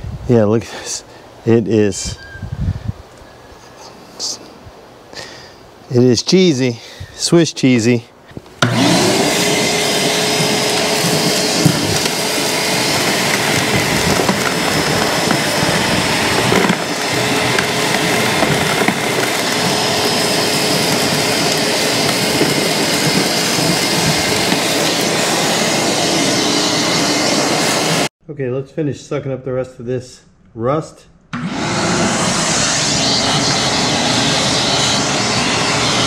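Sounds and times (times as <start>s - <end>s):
shop vacuum humming: 8.3s - 28.1s, 31.4s - 36.0s.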